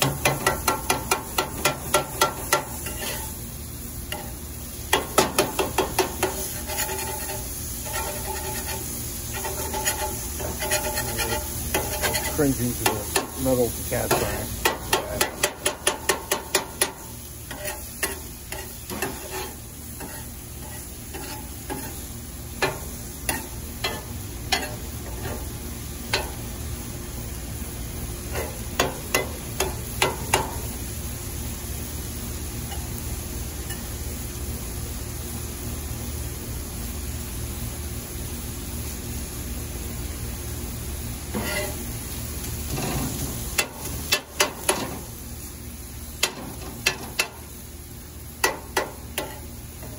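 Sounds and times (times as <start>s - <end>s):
metal spatula clacking on griddle: 0.0s - 3.3s, 4.1s - 13.4s, 14.1s - 22.0s, 22.6s - 26.4s, 28.3s - 30.7s, 41.3s - 41.8s, 42.7s - 45.0s, 46.2s - 47.5s, 48.4s - 49.9s
steak sizzling: 0.0s - 37.4s, 38.0s - 49.9s.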